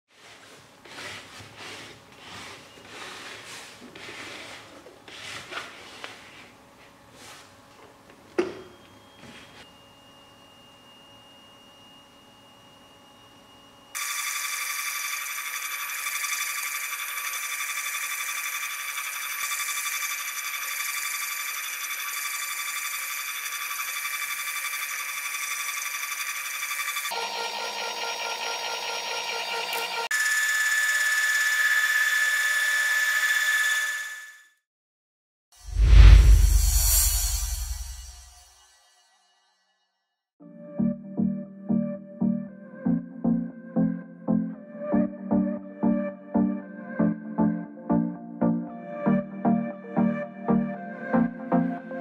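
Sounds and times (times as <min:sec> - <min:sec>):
hands rubbing and scraping machine: 0:00.1 - 0:07.6
stepper motor whine: 0:08.6 - 0:34.4.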